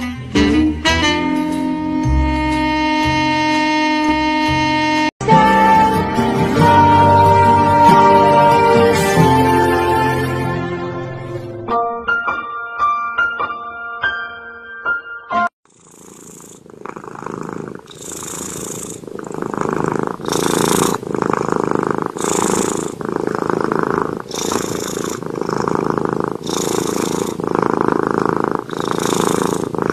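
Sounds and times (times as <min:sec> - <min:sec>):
cat purring: 0:15.7 - 0:29.9.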